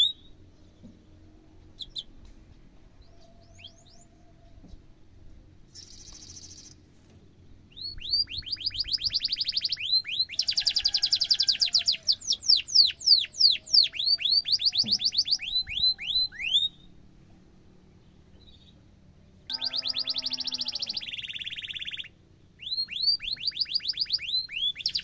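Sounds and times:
canary singing: 0.0s - 0.5s, 1.6s - 2.2s, 3.0s - 4.4s, 5.7s - 6.8s, 7.6s - 17.0s, 19.5s - 25.0s.

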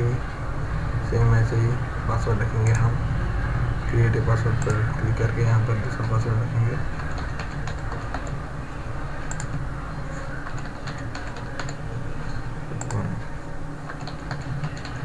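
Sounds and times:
steady low hum: 0.0s - 15.0s
computer keyboard typing: 6.9s - 8.4s, 9.2s - 9.6s, 10.3s - 11.8s, 12.8s - 13.1s, 13.8s - 15.0s.

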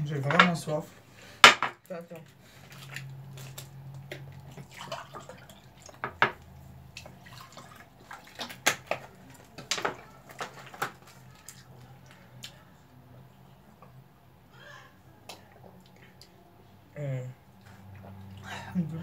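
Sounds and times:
glasses knocking on table: 1.4s - 1.8s, 6.0s - 6.4s.

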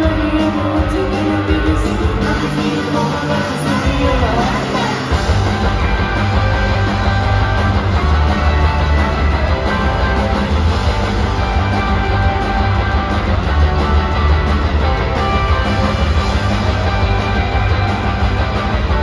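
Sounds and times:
live rock band playing loud: 0.0s - 19.0s.

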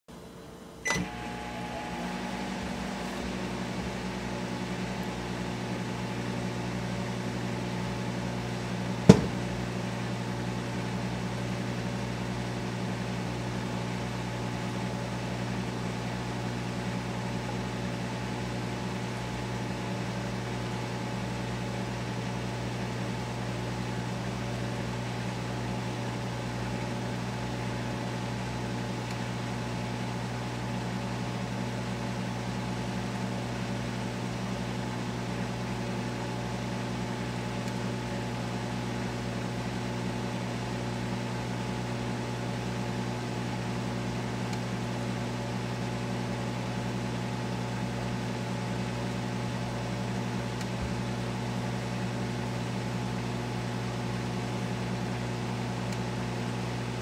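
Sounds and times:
microwave oven humming: 0.1s - 57.0s.

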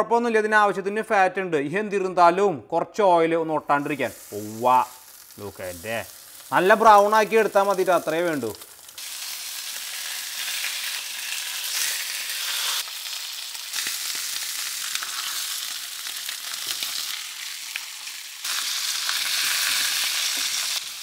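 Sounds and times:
meat sizzling in a pan: 3.8s - 21.0s.

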